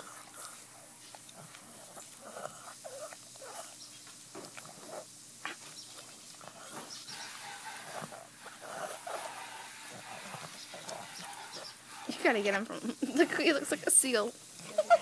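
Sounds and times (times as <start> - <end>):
dog chewing a treat: 0.0 - 13.0.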